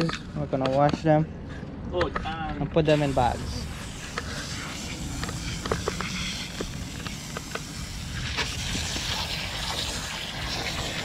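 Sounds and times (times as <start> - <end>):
garden hose spraying water: 2.9 - 11.0.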